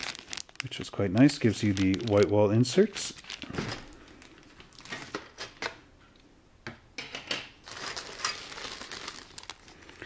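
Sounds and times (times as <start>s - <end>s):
plastic bag crinkling: 0.0s - 5.7s, 7.6s - 10.0s.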